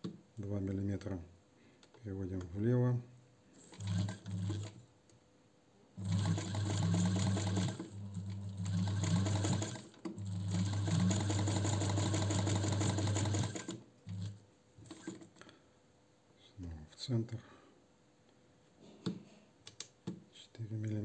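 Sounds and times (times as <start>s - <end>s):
sewing machine motor hum: 3.6s - 4.8s, 6.0s - 15.4s.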